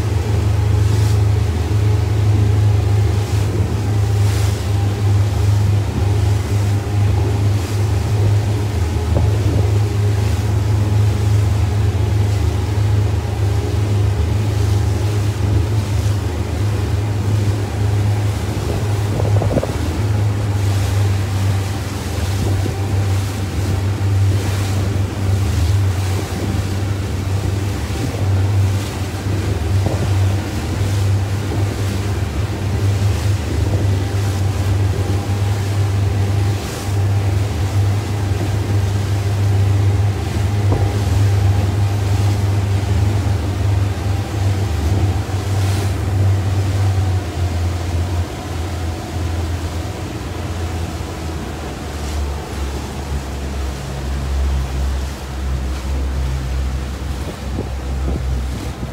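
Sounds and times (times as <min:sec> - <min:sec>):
boat engine droning: 0:00.0 - 0:58.9
water washing past: 0:00.0 - 0:58.9
wind buffeting microphone: 0:00.0 - 0:58.9.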